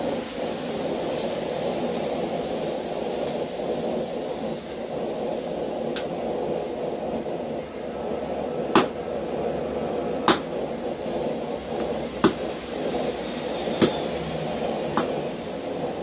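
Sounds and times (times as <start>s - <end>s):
hammer striking hot steel: 0.0s - 2.6s, 8.3s - 9.4s, 10.2s - 16.0s
low background rumble: 0.0s - 16.0s.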